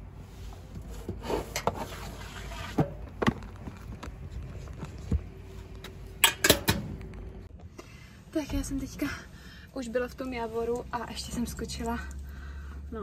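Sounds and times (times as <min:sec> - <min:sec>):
box sliding against metal walls: 0:00.5 - 0:03.0.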